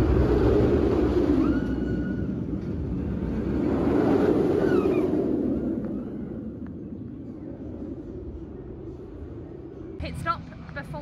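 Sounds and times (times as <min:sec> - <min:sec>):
roller coaster rumbling on track: 0:00.0 - 0:11.0
faint high-pitched wails: 0:01.3 - 0:02.5.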